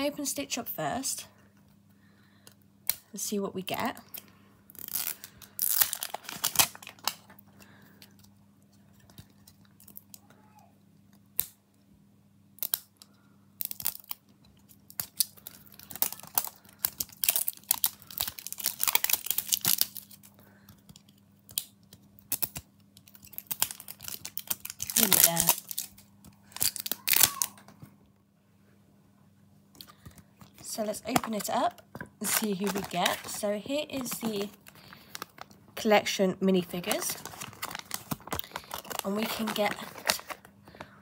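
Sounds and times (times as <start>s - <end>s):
plastic wrapping tearing and crinkling: 4.1s - 8.3s, 12.6s - 27.7s, 29.8s - 35.6s, 36.7s - 40.5s.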